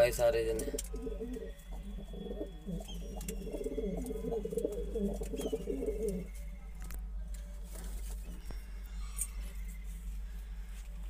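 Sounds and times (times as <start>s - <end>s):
pigeons cooing: 0.0s - 6.4s.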